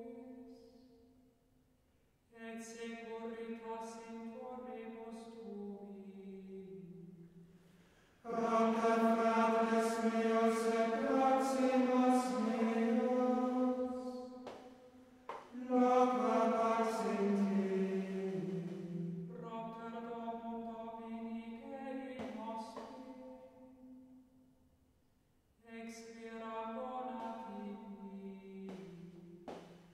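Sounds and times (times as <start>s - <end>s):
slow chant-like singing: 8.2s - 23.9s, 25.7s - 29.9s.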